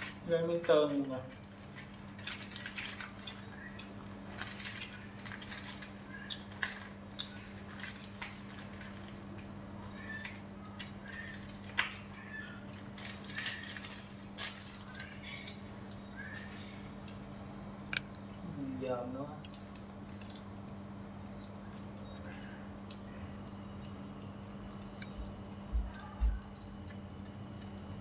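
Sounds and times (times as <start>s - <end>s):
plastic sachet crinkling: 0.0s - 15.6s, 19.5s - 20.7s
steady low hum: 0.0s - 28.0s.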